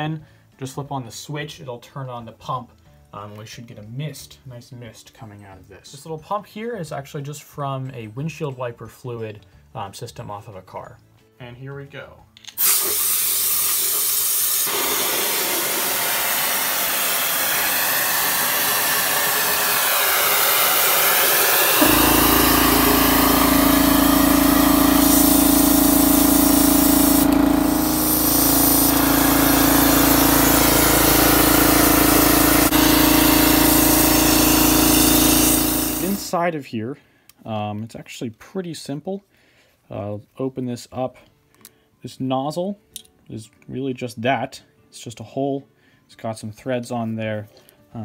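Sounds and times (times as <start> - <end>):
compressed air hissing from nozzle: 12.6 - 36.3
motor humming: 14.7 - 36.3.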